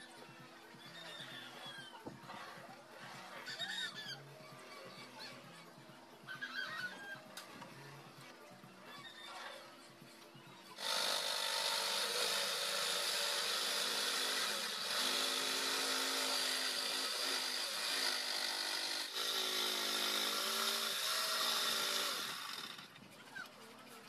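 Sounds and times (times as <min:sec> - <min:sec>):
electric jigsaw cutting wood: 0:10.8 - 0:22.9.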